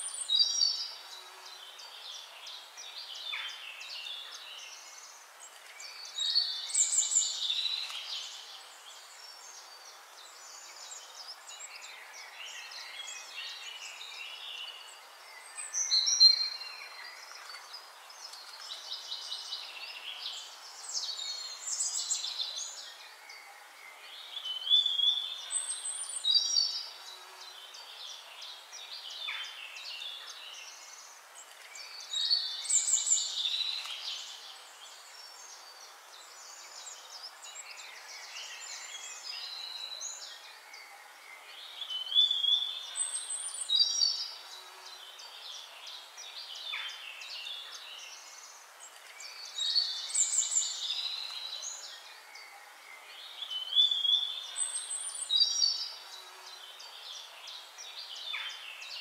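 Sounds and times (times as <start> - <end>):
birds chirping and trilling: 0.0 - 59.0
faint steady hiss: 0.0 - 59.0.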